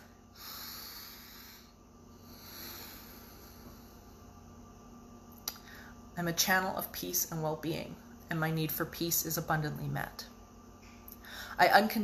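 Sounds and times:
slow deep breath: 0.0 - 4.3, 11.2 - 11.6.

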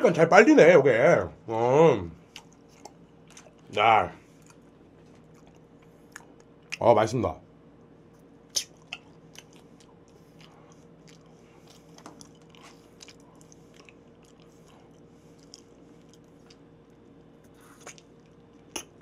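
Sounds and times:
steady low hum: 0.0 - 19.0
person chewing: 2.2 - 6.8, 8.2 - 19.0
small mouth clicks: 8.5 - 10.6, 17.5 - 19.0.

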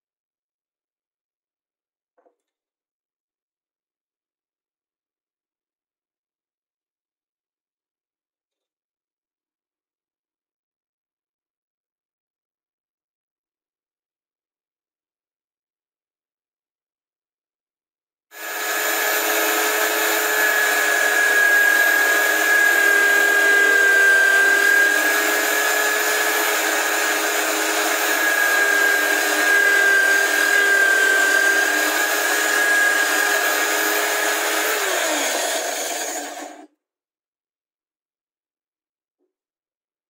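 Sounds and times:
drill bit boring into wood: 18.4 - 36.7
drill press motor whining: 18.4 - 36.7.

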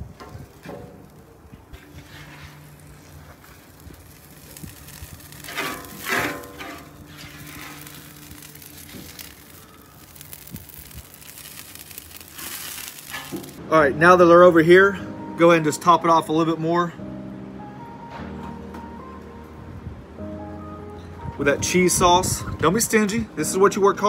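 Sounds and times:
quiet background music: 0.0 - 24.0
metal spatula scraping griddle: 0.1 - 13.6.

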